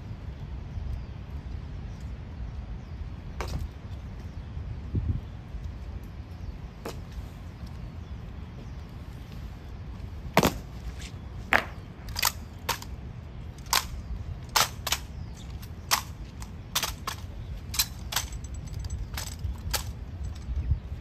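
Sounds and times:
boots stamping on stone: 11.5s - 11.8s
rifles clacking and knocking: 11.5s - 20.6s.

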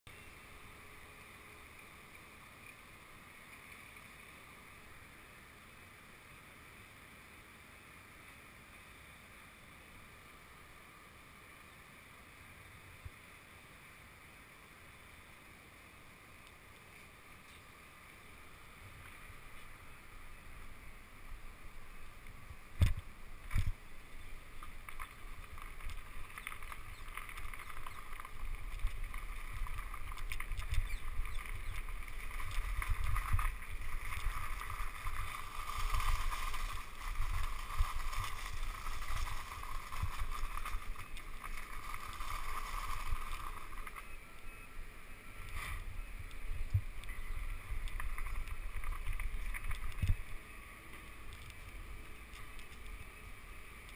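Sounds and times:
bicycle rolling over gravel: 16.6s - 53.9s.

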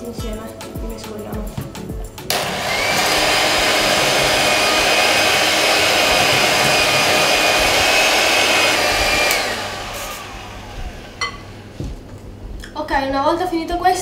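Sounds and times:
electric hand mixer whirring: 2.3s - 12.0s.

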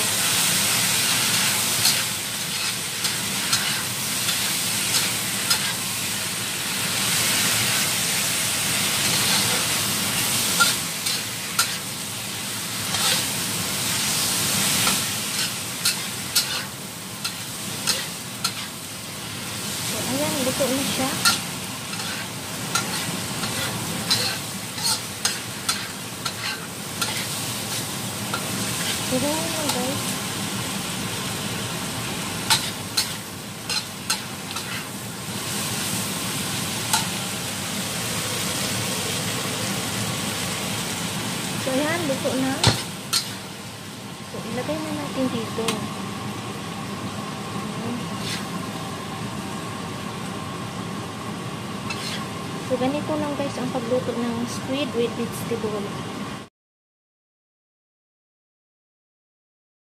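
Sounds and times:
food sizzling in a wok: 0.0s - 56.5s
metal spatula scraping a pan: 1.0s - 5.8s, 9.0s - 9.8s, 10.4s - 11.9s, 12.8s - 13.3s, 14.7s - 18.8s, 20.4s - 29.9s, 32.5s - 34.9s, 42.6s - 43.5s, 48.2s - 48.6s, 51.9s - 52.3s.

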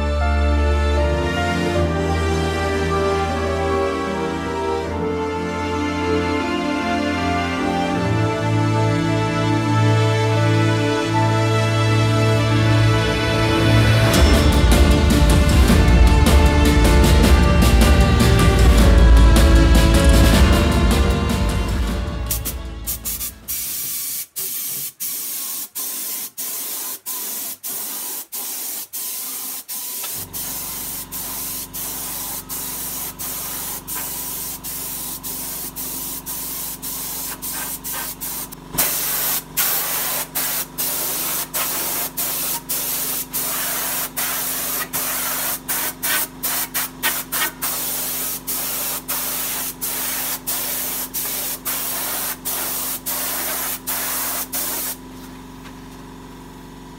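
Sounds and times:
spray gun hissing: 22.3s - 55.0s.

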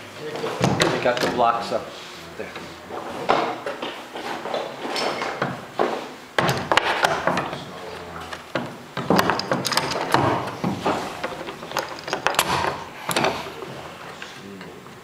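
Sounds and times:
wooden knocks: 5.3s - 7.7s, 8.4s - 13.6s
clamps clicking: 8.6s - 13.6s.

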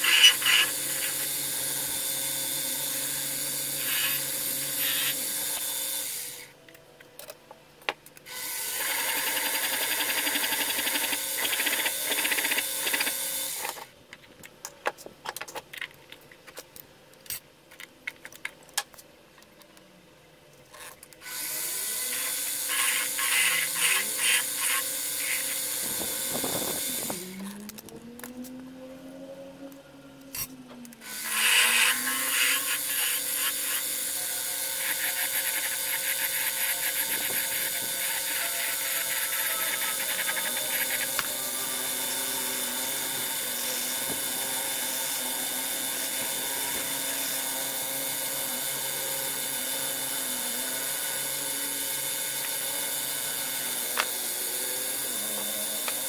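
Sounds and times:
metal lathe cutting hiss: 0.0s - 6.5s.

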